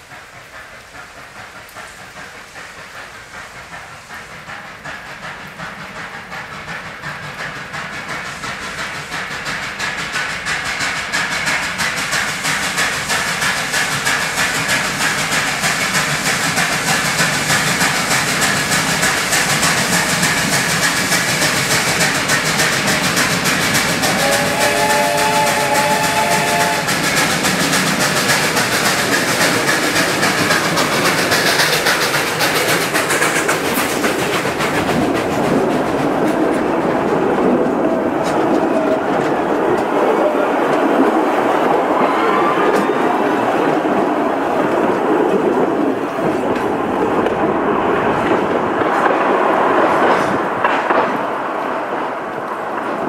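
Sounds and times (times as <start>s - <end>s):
steam locomotive chugging: 0.0s - 53.0s
steam whistle: 24.0s - 27.0s.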